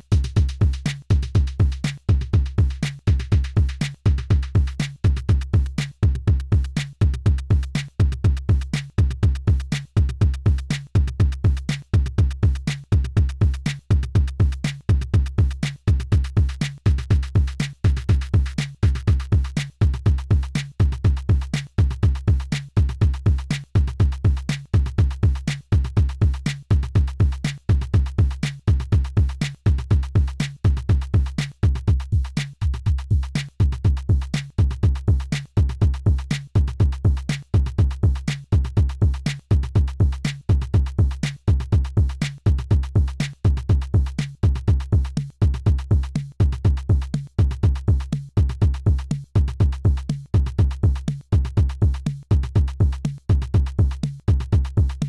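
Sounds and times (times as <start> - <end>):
crisp hi-hat ticks: 0.0 - 55.0
deep kick drums: 0.0 - 55.0.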